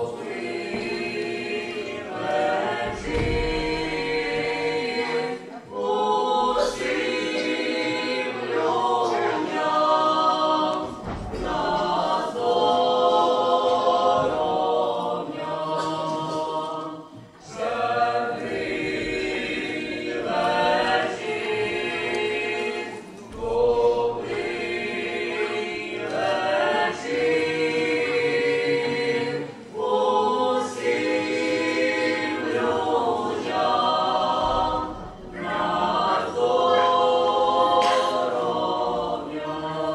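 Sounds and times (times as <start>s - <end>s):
choir singing a cappella: 0.0s - 39.9s.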